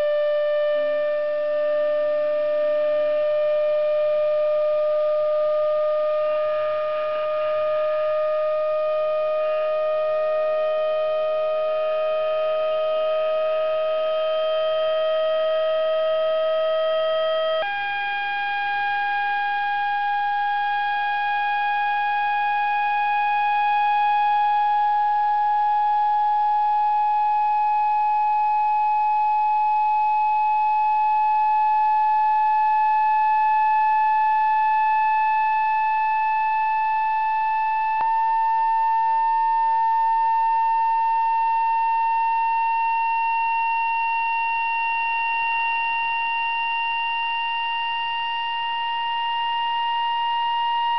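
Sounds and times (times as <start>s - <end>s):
siren-like vibrating membrane tone: 0.0s - 0.8s, 2.8s - 26.7s.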